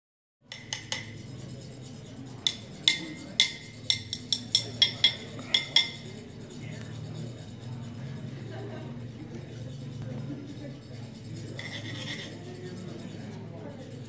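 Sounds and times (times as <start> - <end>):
low hum of a hall: 0.4 - 14.0.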